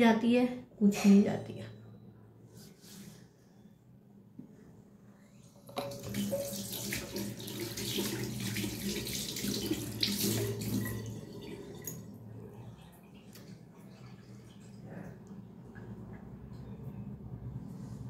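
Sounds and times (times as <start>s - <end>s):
water running: 5.6s - 15.4s.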